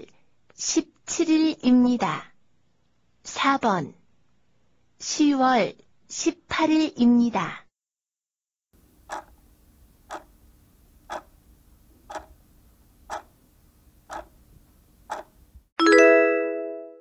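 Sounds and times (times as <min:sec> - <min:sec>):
clock ticking: 0:09.1 - 0:09.3, 0:10.1 - 0:10.3, 0:11.1 - 0:11.3, 0:12.1 - 0:12.4, 0:13.1 - 0:13.3, 0:14.1 - 0:14.3, 0:15.1 - 0:15.3.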